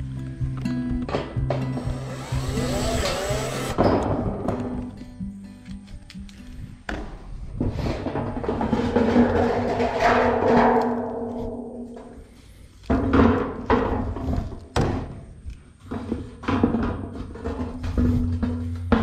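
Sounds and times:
metal roofing sheet rattling: 0:07.6 - 0:12.2.

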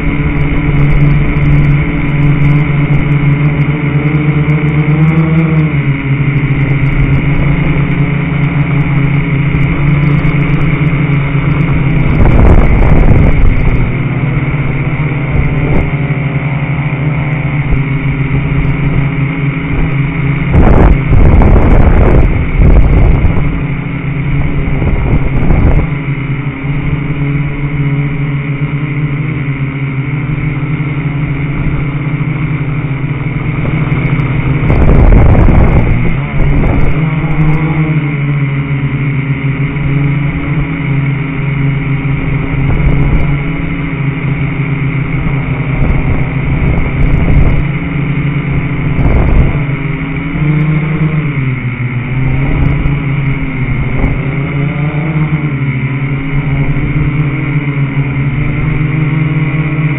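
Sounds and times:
drone propellers buzzing: 0:00.0 - 0:59.9.

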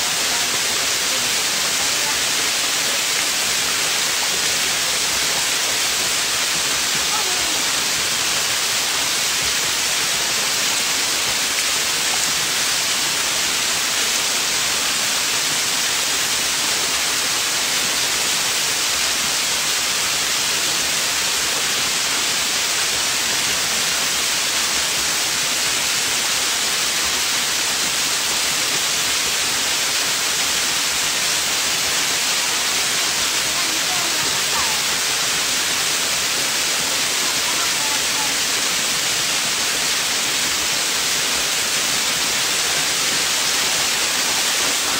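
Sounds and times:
waterfall rushing over rock: 0:00.0 - 0:44.9.

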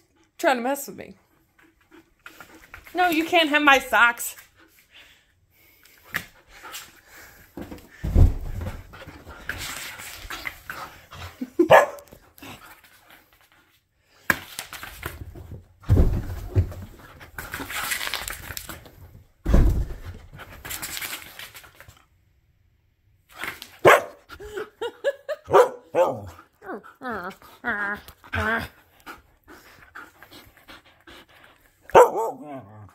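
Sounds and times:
heavy thumps: 0:07.6 - 0:09.1, 0:15.8 - 0:17.0, 0:19.4 - 0:20.4
dog barking and yipping: 0:11.6 - 0:12.1, 0:23.8 - 0:24.3, 0:25.4 - 0:26.4, 0:31.9 - 0:32.9.

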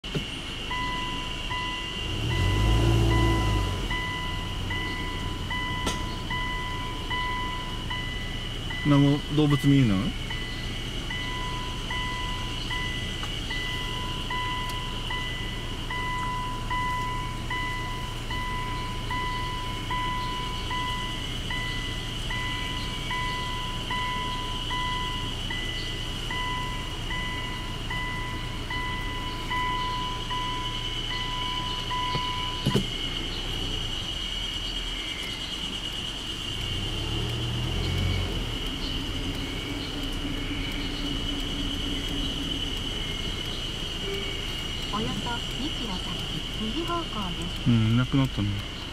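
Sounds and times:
car warning chime beeping: 0:00.0 - 0:48.9
low vehicle hum: 0:00.0 - 0:48.9
high-pitched drone: 0:38.0 - 0:48.8.

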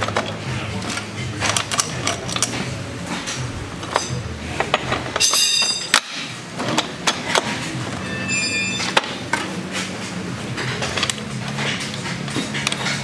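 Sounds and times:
metallic clinks of hand tools: 0:05.2 - 0:06.0
brief high-pitched squeak: 0:08.0 - 0:09.0.

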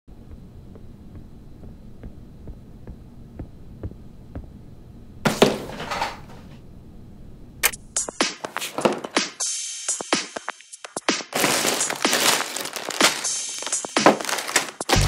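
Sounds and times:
soft footsteps: 0:00.1 - 0:04.6
electronic music with drum-machine beat: 0:08.0 - 0:12.2, 0:13.1 - 0:15.0.

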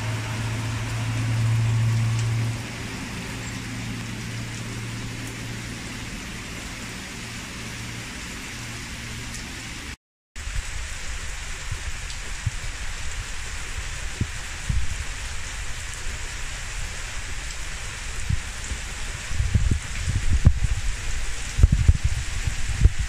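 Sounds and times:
low steady hum: 0:00.0 - 0:09.8
heavy rain splashing on street: 0:00.0 - 0:23.0.

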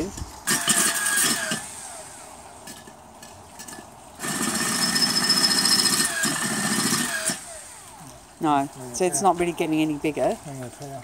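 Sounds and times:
cordless drill grinding stone: 0:00.4 - 0:03.0, 0:03.6 - 0:09.4.

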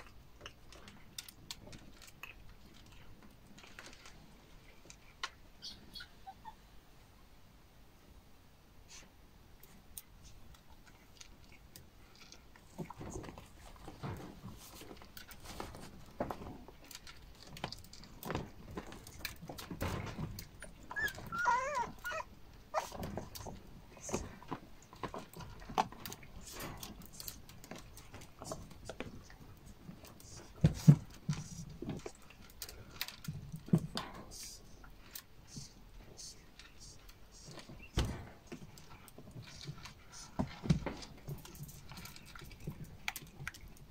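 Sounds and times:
puppies crunching kibble: 0:00.0 - 0:05.3, 0:09.6 - 0:43.9
high-pitched puppy whine: 0:05.6 - 0:06.6, 0:20.6 - 0:23.0.

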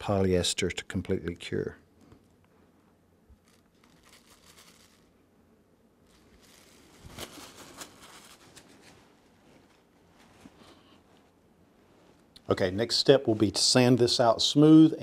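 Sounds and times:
cling wrap crinkling: 0:03.3 - 0:05.2, 0:06.0 - 0:11.3
sharp plastic crackles: 0:03.3 - 0:05.2, 0:06.1 - 0:09.0.

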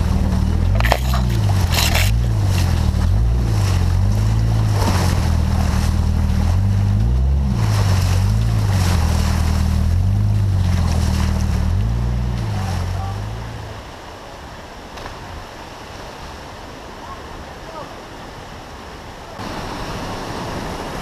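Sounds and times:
off-road vehicle engine: 0:00.0 - 0:14.6
water splashing: 0:00.0 - 0:21.0.

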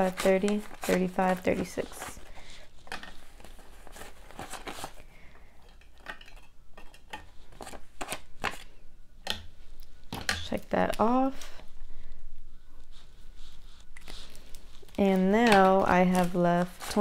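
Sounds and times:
paper bills rustling: 0:00.0 - 0:05.3, 0:12.8 - 0:17.0.

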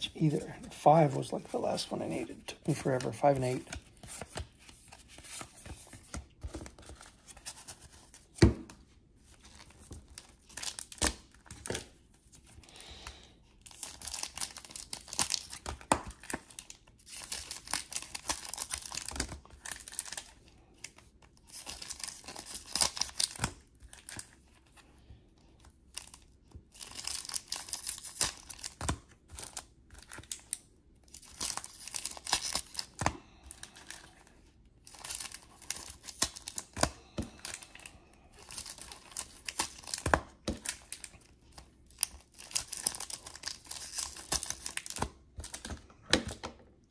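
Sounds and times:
card pack wrappers tearing: 0:09.4 - 0:11.9, 0:13.6 - 0:24.5, 0:25.9 - 0:46.4.

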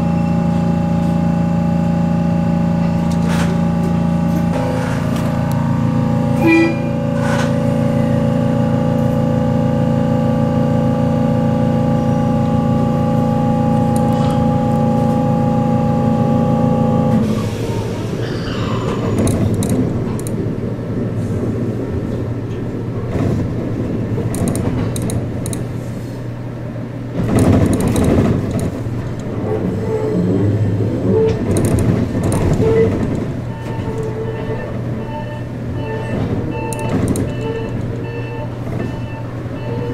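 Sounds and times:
electric train whine: 0:00.0 - 0:39.9
train wheel rumble: 0:00.0 - 0:39.9
clicks over rail joints: 0:19.1 - 0:20.4, 0:24.2 - 0:25.7, 0:27.2 - 0:29.4, 0:31.3 - 0:34.2, 0:36.0 - 0:38.0.

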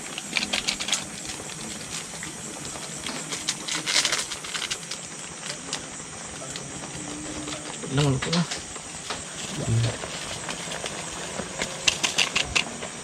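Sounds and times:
plastic sachet crinkling: 0:00.0 - 0:08.4
soup boiling with a hiss: 0:00.0 - 0:13.0.

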